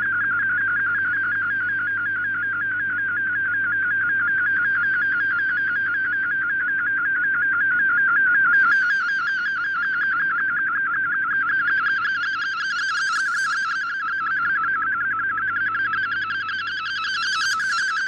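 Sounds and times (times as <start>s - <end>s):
warbling radio data tone: 15.4s - 18.0s.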